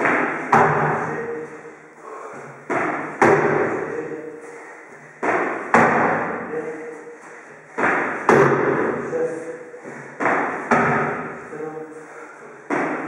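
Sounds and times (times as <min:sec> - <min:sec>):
feet landing on wooden box: 0:00.0 - 0:01.2, 0:02.6 - 0:03.8, 0:05.2 - 0:06.4, 0:07.8 - 0:09.0, 0:10.0 - 0:11.4.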